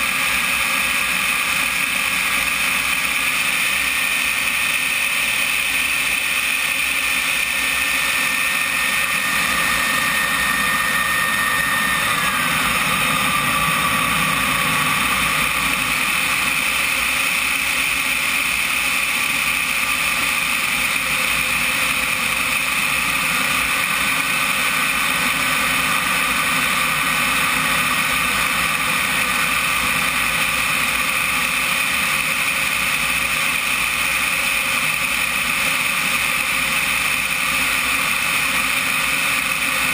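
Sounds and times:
jet turbine whine: 0:00.0 - 0:39.9.

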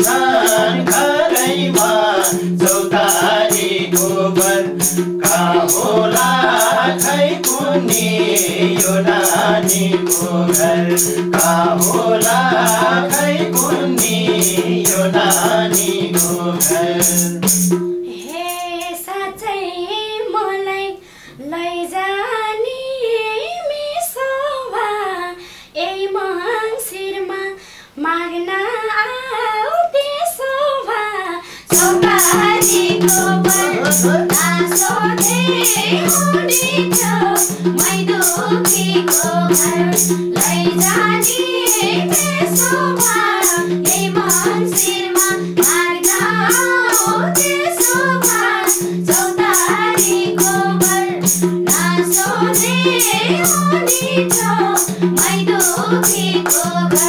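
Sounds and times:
person singing: 0:00.0 - 0:17.4, 0:18.1 - 0:20.5, 0:31.7 - 0:57.0
hand drum and percussion beat: 0:00.0 - 0:19.0, 0:31.7 - 0:57.0.

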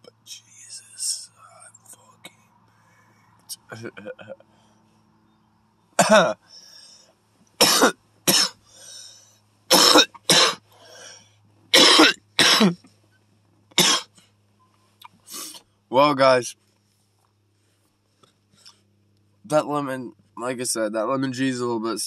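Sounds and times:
man coughing hard: 0:06.0 - 0:06.4, 0:07.6 - 0:08.6, 0:09.7 - 0:10.6, 0:11.8 - 0:12.8, 0:13.8 - 0:14.2.

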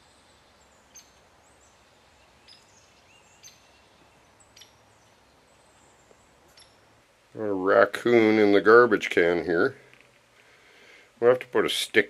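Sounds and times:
high bird chirps: 0:02.3 - 0:06.9.

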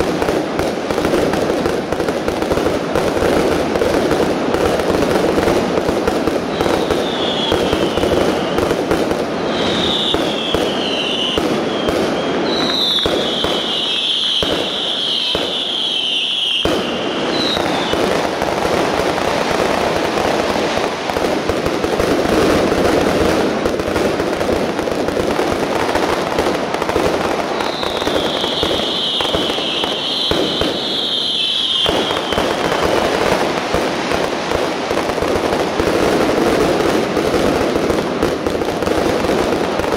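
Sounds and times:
firework bangs and crackling: 0:00.0 - 0:39.9
high falling firework whistles: 0:06.4 - 0:21.0, 0:26.9 - 0:34.4.

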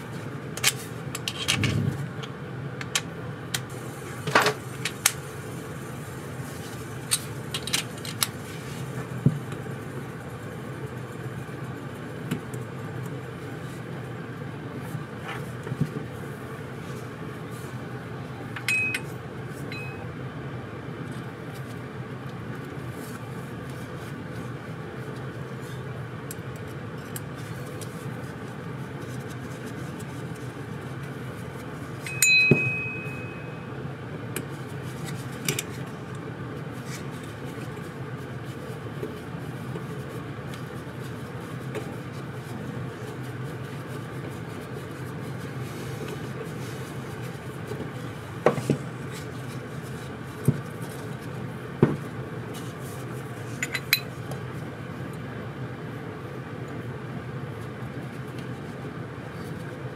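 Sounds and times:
steady low hum: 0:00.0 - 0:59.9
ringing metallic clink: 0:18.6 - 0:19.1, 0:32.1 - 0:33.6.

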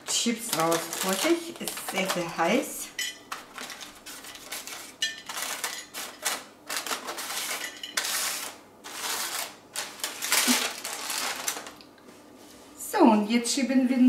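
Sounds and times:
baking paper rustling: 0:00.0 - 0:11.8
chips clattering onto a plate: 0:03.3 - 0:11.8.

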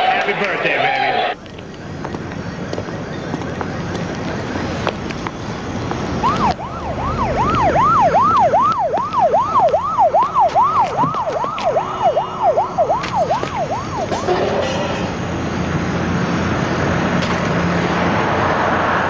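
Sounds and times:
low street hum: 0:00.0 - 0:19.0
siren yelping: 0:06.1 - 0:15.5.

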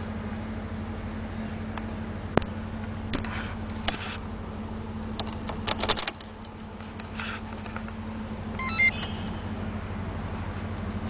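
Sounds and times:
steady low hum: 0:00.0 - 0:11.0
keys rattling in ignition: 0:05.2 - 0:06.3
electronic dashboard beeps: 0:08.6 - 0:09.6.

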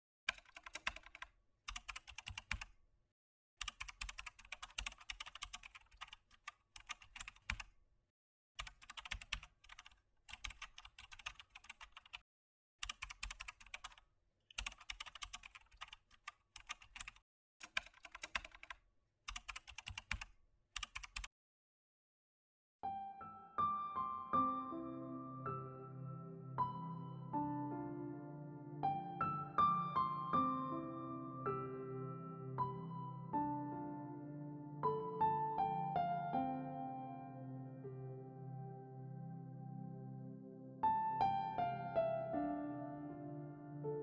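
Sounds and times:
computer keyboard typing: 0:00.3 - 0:02.8, 0:03.6 - 0:07.7, 0:08.6 - 0:12.2, 0:12.8 - 0:21.3.

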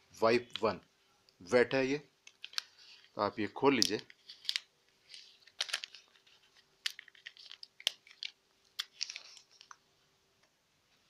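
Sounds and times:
wet-wipe sachet crinkling: 0:02.2 - 0:09.8.

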